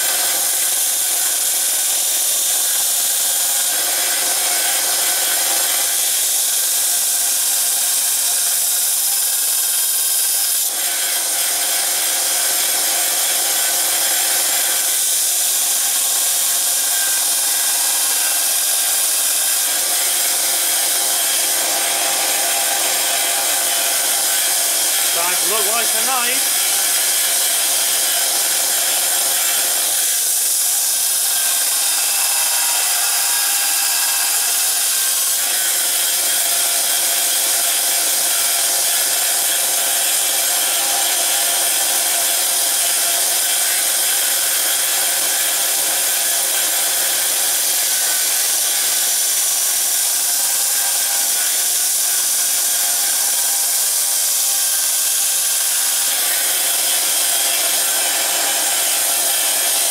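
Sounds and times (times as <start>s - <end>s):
belt sander grinding blade: 0.0s - 59.9s.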